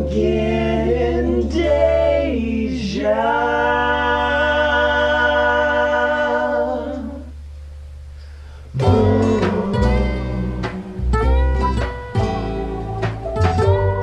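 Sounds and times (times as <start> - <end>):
vocal group singing in harmony: 0.0 - 7.4, 8.7 - 11.4.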